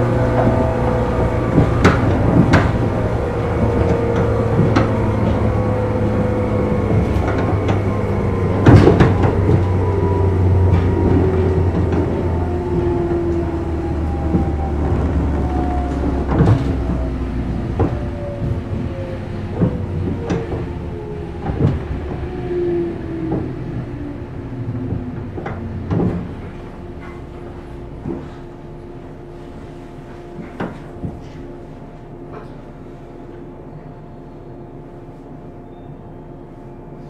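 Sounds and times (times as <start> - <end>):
electric train motor whine: 0.0 - 28.2
wheels rumbling on rail: 0.0 - 37.0.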